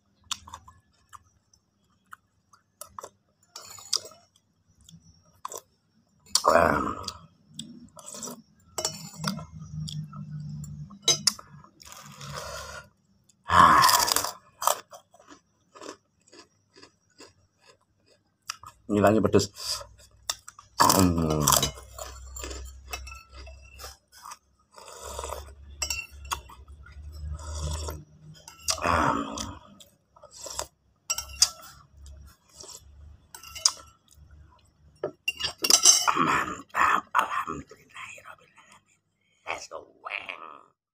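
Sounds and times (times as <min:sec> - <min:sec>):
low steady hum: 0:00.0 - 0:14.3
soft chewing: 0:00.1 - 0:06.4, 0:14.1 - 0:18.9, 0:19.6 - 0:25.6
spoon clinking against ceramic bowl: 0:08.7 - 0:09.7, 0:21.5 - 0:23.9, 0:25.7 - 0:27.1, 0:31.1 - 0:31.8, 0:33.3 - 0:33.9, 0:35.0 - 0:36.1.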